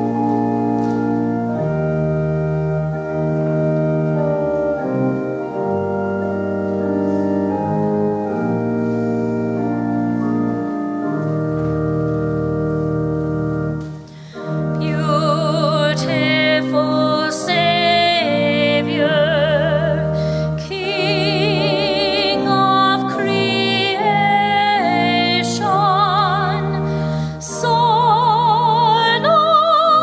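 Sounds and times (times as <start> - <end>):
high melody with vibrato: 0.0 - 30.0
sustained keyboard chords: 0.0 - 30.0.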